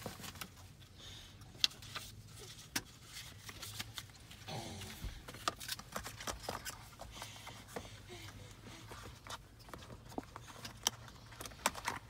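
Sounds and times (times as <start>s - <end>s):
paper and cardboard rustling: 0.0s - 0.8s, 1.7s - 7.8s.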